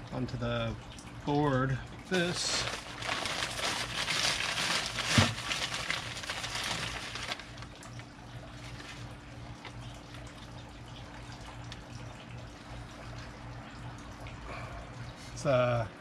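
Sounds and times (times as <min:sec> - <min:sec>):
faint steady hum: 0:00.0 - 0:16.0
newspaper rustling: 0:02.4 - 0:07.8.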